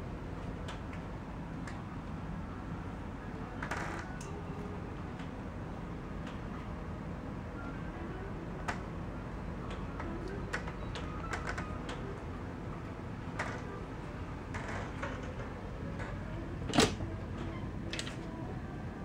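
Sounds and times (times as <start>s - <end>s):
steady low hum: 0.0s - 19.0s
door latch clicking: 16.7s - 17.0s.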